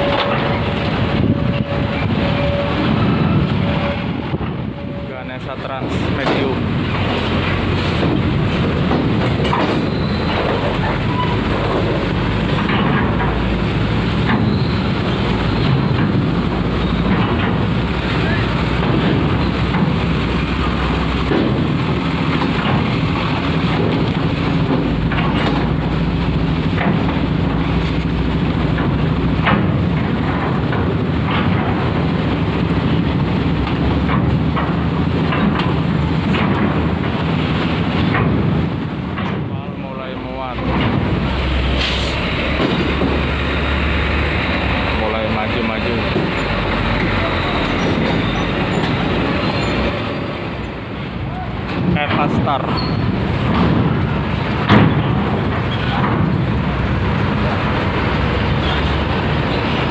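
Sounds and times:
diesel bus engine rumbling: 0.0s - 59.9s
bus diesel engine pulling away: 41.3s - 45.2s, 45.8s - 51.1s.

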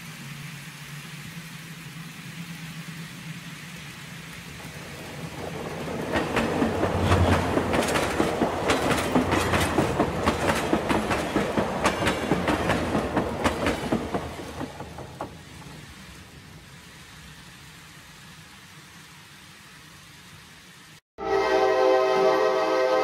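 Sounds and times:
model train wheels clattering: 4.3s - 16.0s.

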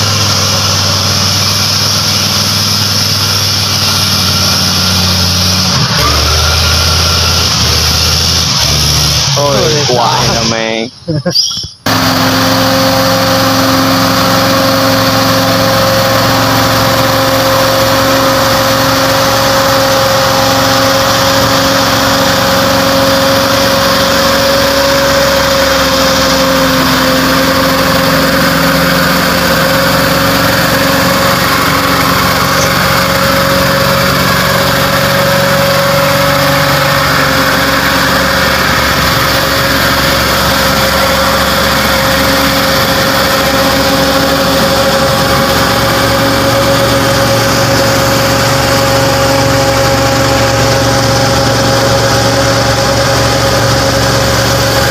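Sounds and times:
truck engine under load: 0.0s - 54.9s
steady high tone: 9.2s - 11.9s.

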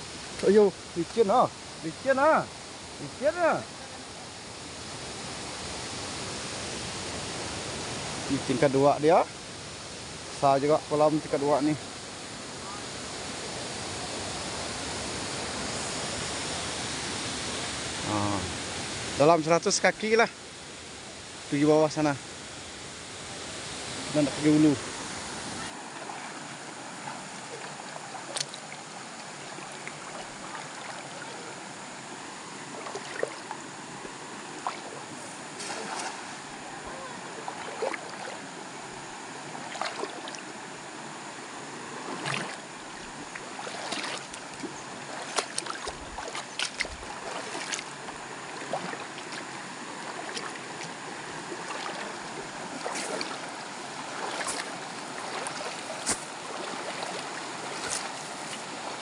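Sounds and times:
rocky river rushing: 23.9s - 59.0s
splashes from wading: 25.5s - 38.6s, 39.4s - 40.6s, 41.8s - 59.0s.

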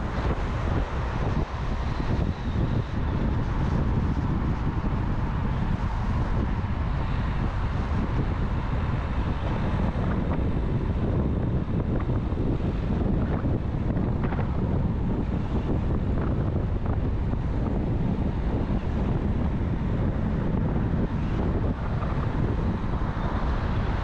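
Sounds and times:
vehicle road and engine noise: 0.0s - 24.0s
wind buffeting microphone: 0.0s - 24.0s.

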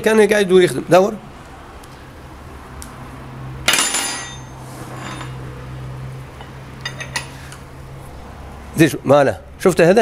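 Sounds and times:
wrench clinking on engine block: 3.7s - 5.4s, 6.4s - 7.4s.

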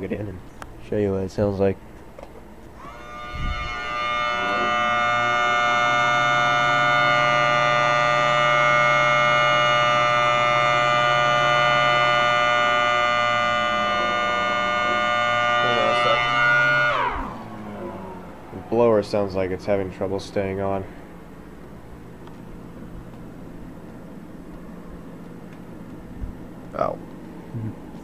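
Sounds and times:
low motor hum: 0.0s - 28.0s
siren winding up: 2.8s - 18.8s.

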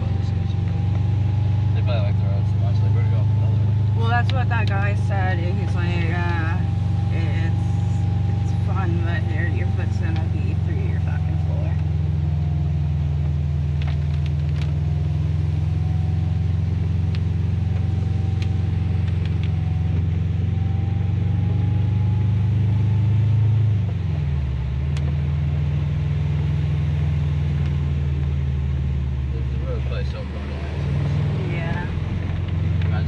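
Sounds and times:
car engine running: 0.0s - 33.0s.

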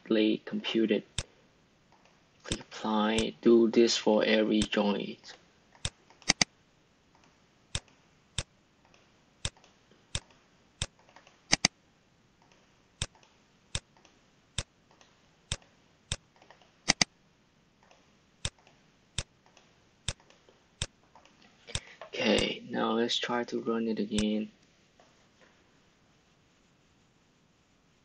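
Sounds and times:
computer mouse clicking: 5.7s - 6.5s, 7.1s - 11.8s, 12.4s - 17.1s, 17.8s - 22.5s.

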